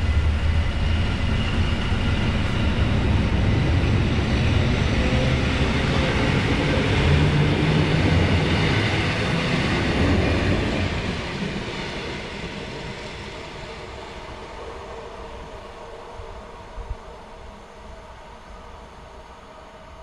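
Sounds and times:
train wheels rumbling: 0.0s - 17.2s.

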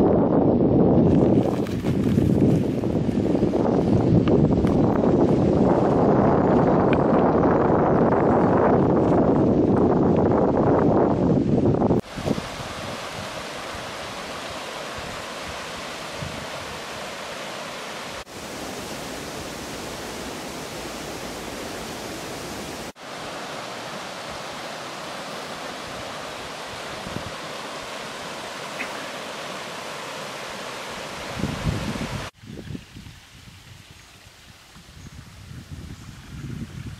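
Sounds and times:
river rushing over stones: 12.0s - 32.4s.

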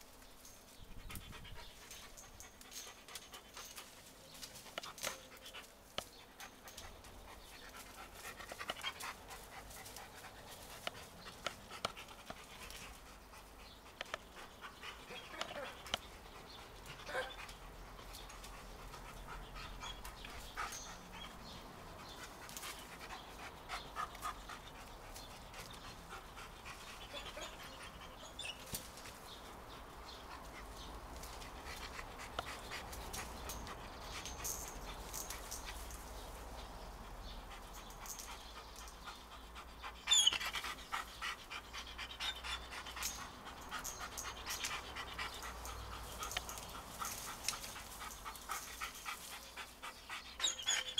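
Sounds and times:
small clicks and rustles: 0.0s - 13.1s, 30.4s - 36.6s, 42.8s - 49.8s
dog panting: 0.9s - 50.9s.

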